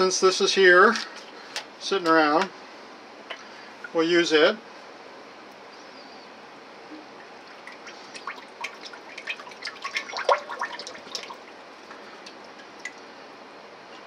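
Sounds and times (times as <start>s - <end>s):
oil glugging from a bottle: 7.1s - 13.0s.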